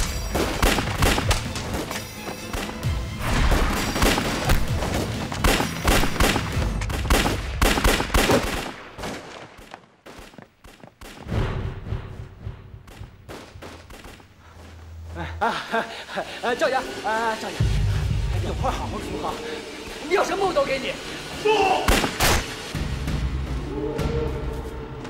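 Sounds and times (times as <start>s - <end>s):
gunfire: 0.0s - 1.8s, 2.5s - 9.7s, 21.9s - 22.5s
low music drone: 14.8s - 25.0s.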